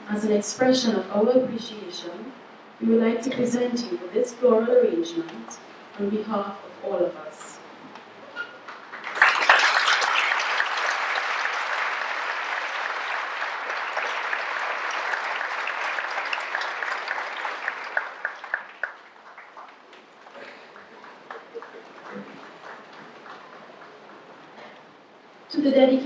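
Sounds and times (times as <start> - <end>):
audience applauding: 8.7 - 24.5.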